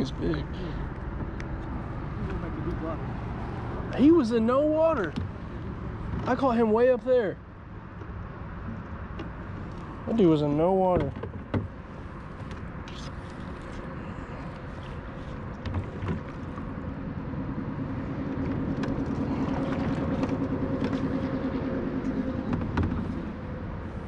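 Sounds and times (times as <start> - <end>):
outdoor rumble: 0.0 - 24.0
low motor hum: 7.5 - 24.0
paddle knocking against kayak hull: 10.9 - 11.8.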